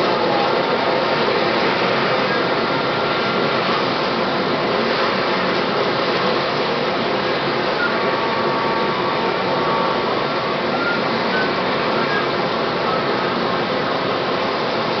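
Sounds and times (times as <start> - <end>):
helicopter turbine engines idling: 0.0 - 15.0.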